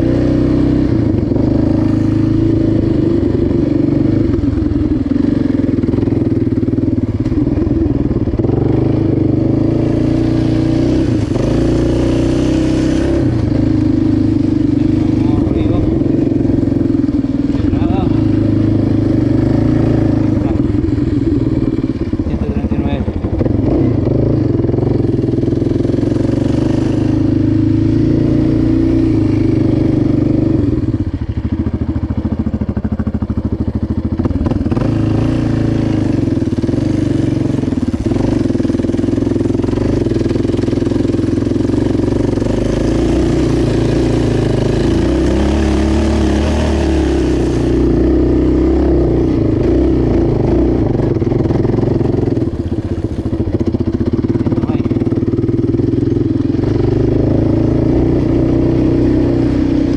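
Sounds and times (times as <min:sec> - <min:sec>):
atv engine running on dirt: 0:00.0 - 0:59.9.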